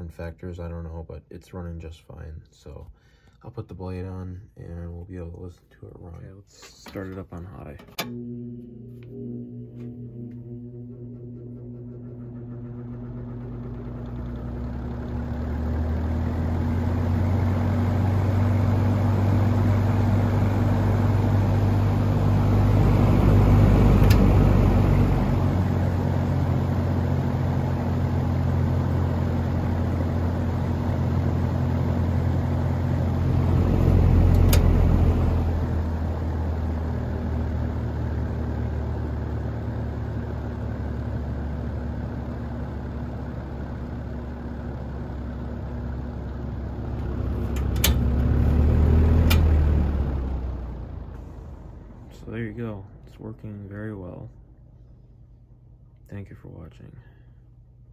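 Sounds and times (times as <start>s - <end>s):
fan motor hum: 6.0s - 55.8s
rushing air from fan: 11.8s - 37.5s.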